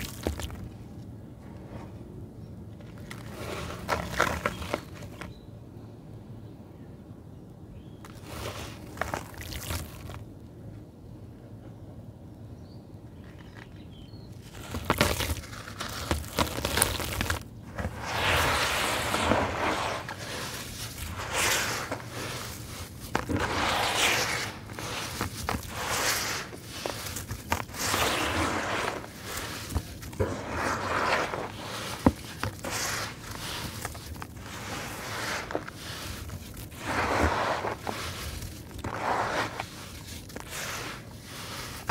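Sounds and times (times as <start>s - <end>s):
hands crumbling wet sand mixture: 0.0s - 0.8s, 2.8s - 5.3s, 8.0s - 10.2s, 14.4s - 41.9s.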